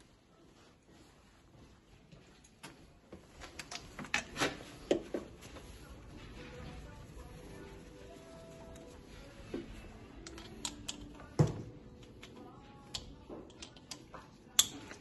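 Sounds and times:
tools clicking and knocking: 10.2 - 15.0.

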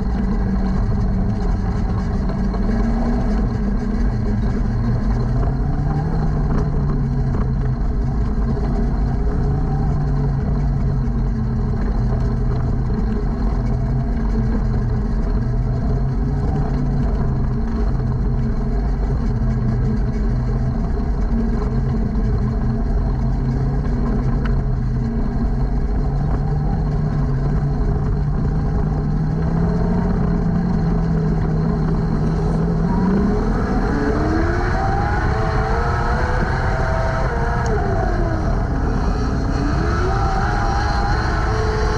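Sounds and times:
race car engine revving: 0.0 - 41.9.

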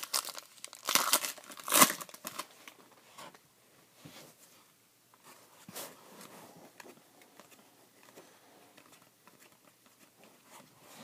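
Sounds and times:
cards rustling and clicking: 6.7 - 10.2.

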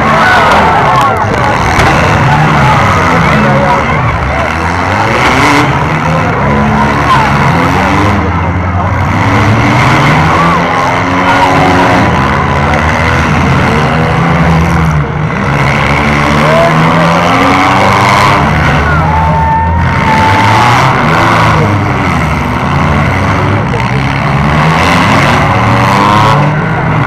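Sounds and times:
car engines revving: 0.0 - 27.0.

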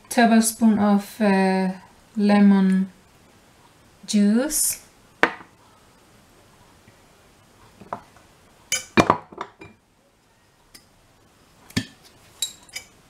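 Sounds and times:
spoon clinking against glass bowl: 8.7 - 9.0, 12.4 - 12.9.

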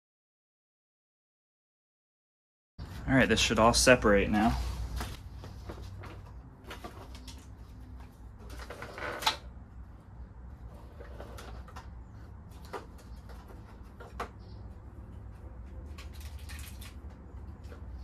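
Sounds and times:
plastic trim rustling and scraping: 4.8 - 9.5, 10.5 - 16.0.

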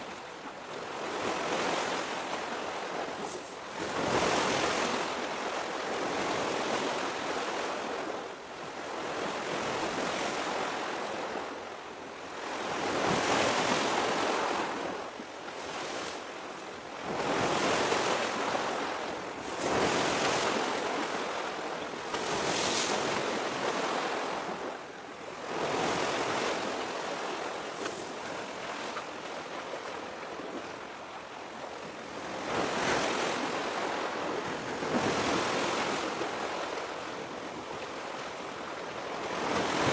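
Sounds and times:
small waves washing in: 12.4 - 39.9.

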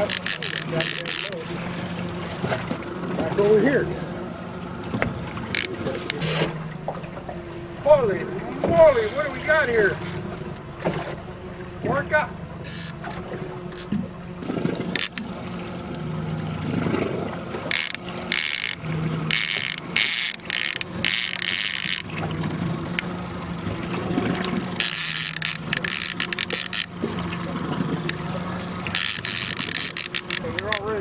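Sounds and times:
fishing reel whirring: 0.0 - 1.4, 5.4 - 6.2, 8.8 - 11.7, 12.5 - 14.0, 14.8 - 15.3, 17.6 - 31.0
boat engine humming: 0.0 - 31.0.

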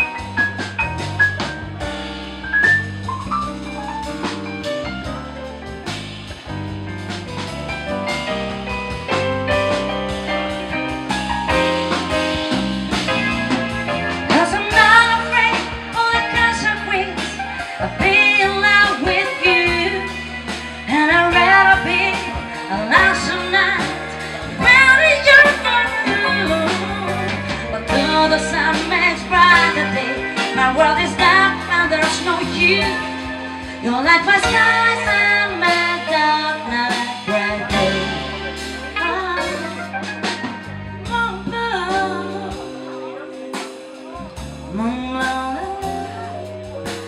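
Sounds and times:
live band playing: 0.0 - 47.0
woman singing: 14.1 - 43.8, 44.6 - 46.5.

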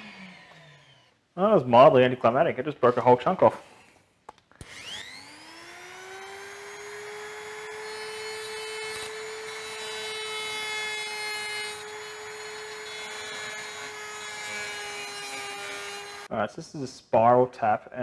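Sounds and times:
rotary tool whine: 0.0 - 1.2, 4.6 - 10.5, 11.1 - 16.3.

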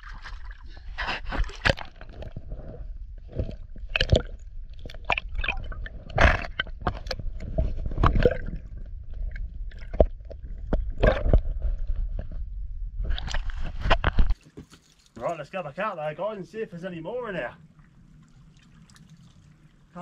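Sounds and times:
water sloshing and splashing: 0.0 - 12.4, 13.0 - 20.0
steady low rumble: 2.4 - 14.2.

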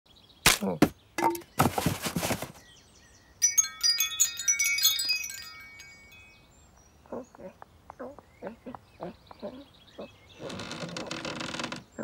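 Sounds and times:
metal wind chime ringing: 3.4 - 6.6.

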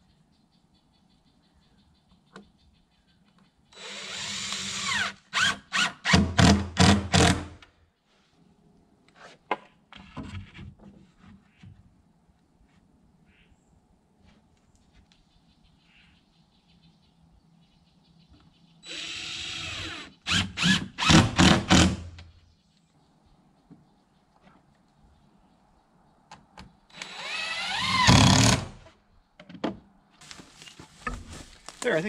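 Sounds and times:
power drill driving screws: 3.8 - 7.5, 18.9 - 22.0, 26.9 - 28.8.

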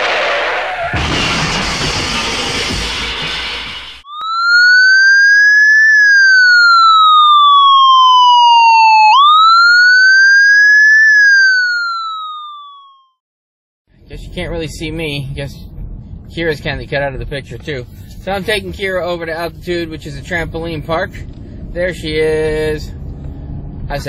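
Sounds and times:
loud noisy rush: 0.0 - 4.0
electronic siren wailing: 4.0 - 13.2.

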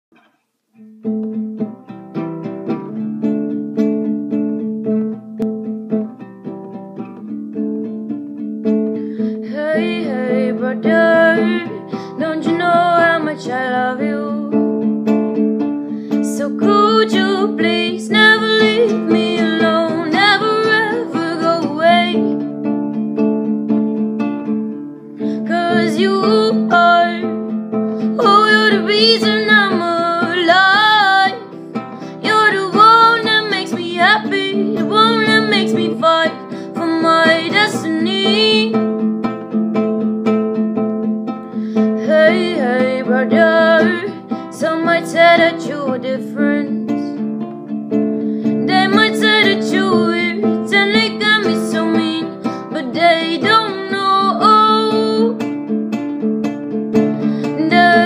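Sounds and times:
classical guitar chords: 0.1 - 58.0
woman singing: 9.2 - 14.9, 16.1 - 22.5, 25.2 - 38.9, 41.5 - 47.3, 48.4 - 55.5, 57.2 - 58.0.

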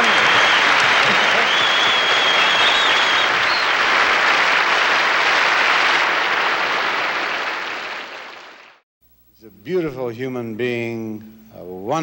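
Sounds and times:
person whistling: 0.0 - 3.7
audience applauding: 0.0 - 8.8.

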